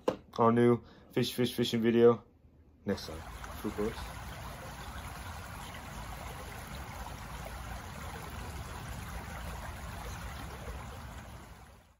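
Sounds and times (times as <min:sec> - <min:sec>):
creek running over rocks: 0:03.0 - 0:11.9.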